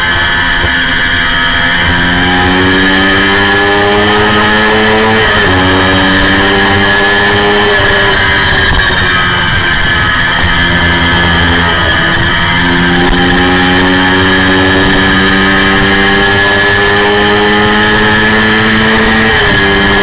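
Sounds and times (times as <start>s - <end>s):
motorcycle engine revving high: 0.0s - 20.0s.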